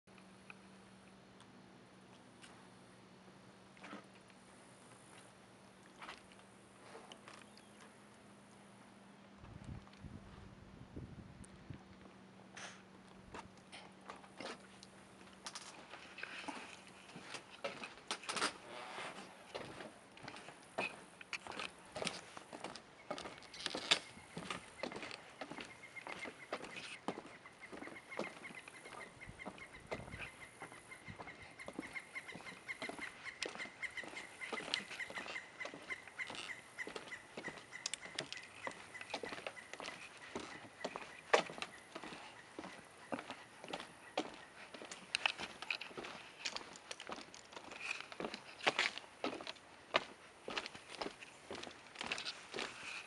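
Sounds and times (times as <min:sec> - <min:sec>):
footsteps on dock walkway: 0:11.4 - 0:53.0.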